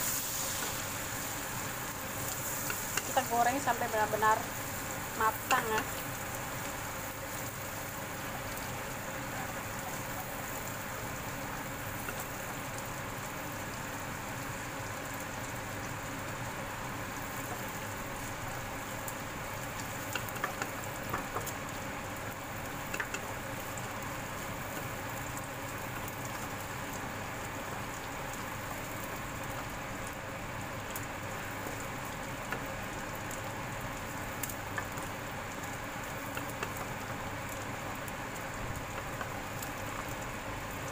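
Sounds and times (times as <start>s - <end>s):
fish frying in hot oil: 0.0s - 40.9s
spatula clicking against pan: 20.0s - 21.6s, 22.9s - 23.3s, 36.3s - 36.9s.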